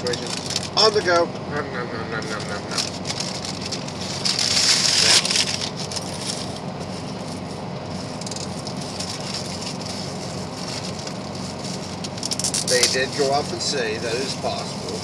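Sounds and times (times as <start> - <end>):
paper wrapper crinkling: 0.0 - 0.8, 2.4 - 13.0
truck cab low drone: 0.0 - 15.0.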